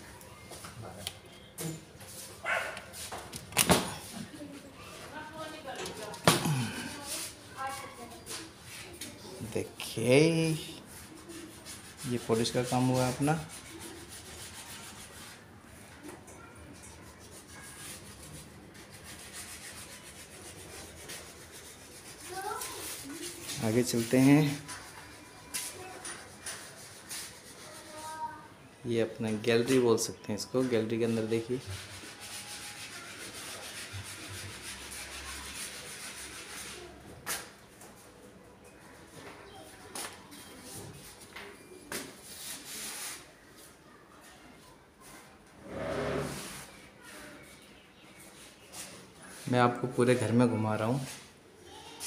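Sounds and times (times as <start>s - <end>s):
scratchy rubbing strokes: 6.7s - 9.1s, 10.2s - 15.5s, 17.0s - 28.4s, 31.1s - 37.0s, 42.2s - 43.3s, 45.6s - 46.8s.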